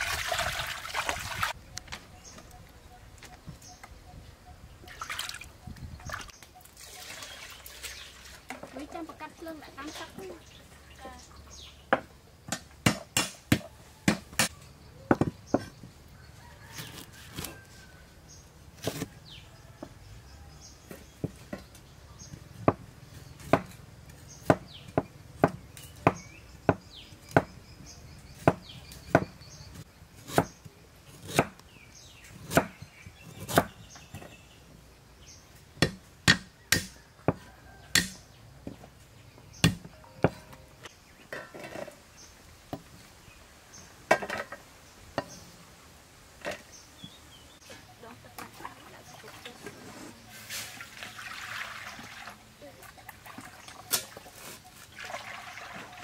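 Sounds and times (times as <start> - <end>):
cleaver chopping on wooden block: 11.9 - 14.5, 24.4 - 27.6, 28.4 - 29.4, 30.2 - 30.6, 31.2 - 31.6, 32.4 - 33.8, 35.8 - 38.8, 39.6 - 40.4.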